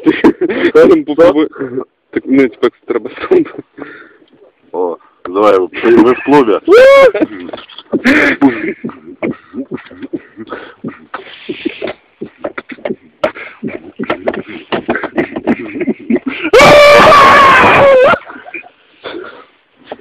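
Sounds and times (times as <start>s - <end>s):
man wailing loudly: 6.6s - 8.6s, 14.9s - 18.4s
vocal noises and clicks: 7.2s - 16.4s.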